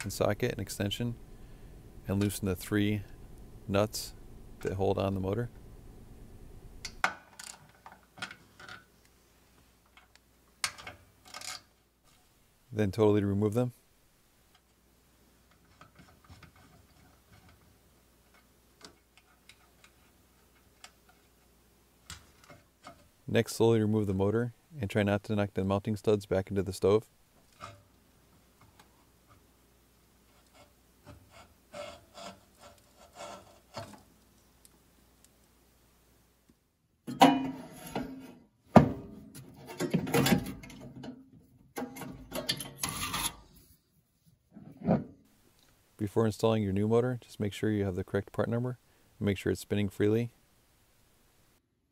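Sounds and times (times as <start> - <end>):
cord rubbing and scraping on metal: 30.2 - 34.0, 37.5 - 38.4, 41.9 - 43.8.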